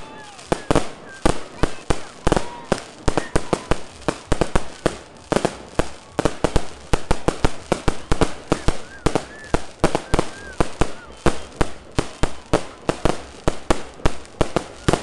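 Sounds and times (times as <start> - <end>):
fireworks bangs: 0.0 - 15.0.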